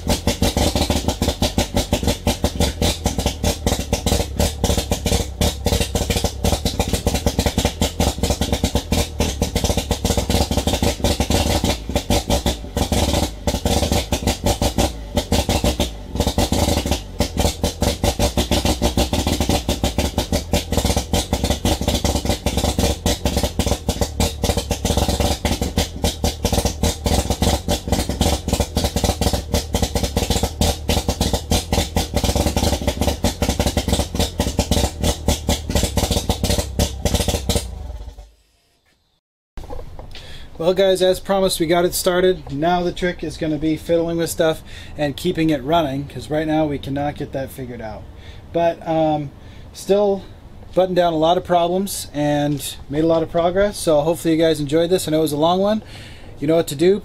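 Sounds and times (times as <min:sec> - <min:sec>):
rotary engine crackling and popping: 0:00.0 - 0:38.4.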